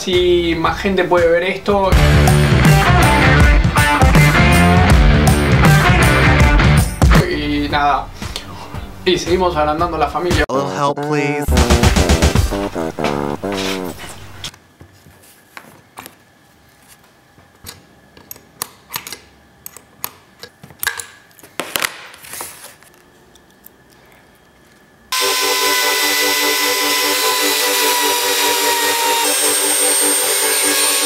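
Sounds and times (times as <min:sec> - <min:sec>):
sharp metal clicks and taps: 0:17.6 - 0:21.2
trim router whining: 0:25.1 - 0:31.0.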